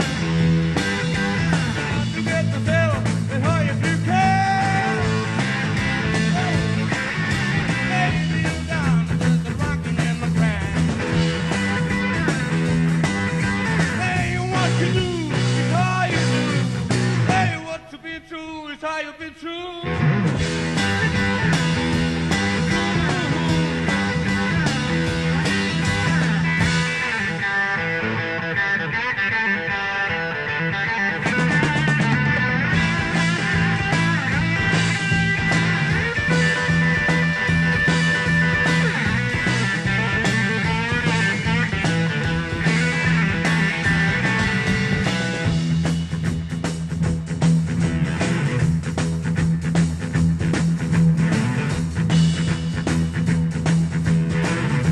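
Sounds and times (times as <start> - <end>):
bending lead melody: 0.0 - 17.6, 19.8 - 54.9
electric bass line: 0.0 - 17.6, 19.8 - 54.9
drum kit: 0.0 - 17.8, 19.8 - 28.0, 31.0 - 54.9.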